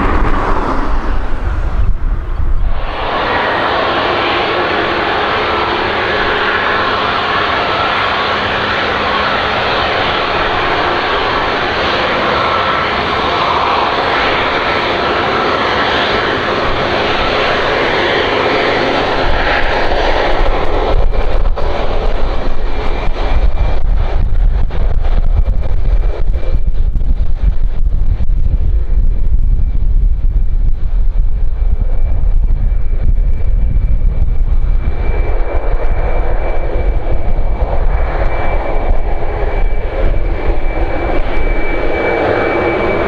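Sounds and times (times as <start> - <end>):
jet engine hiss: 0.0 - 23.4
wind buffeting microphone: 0.0 - 43.0.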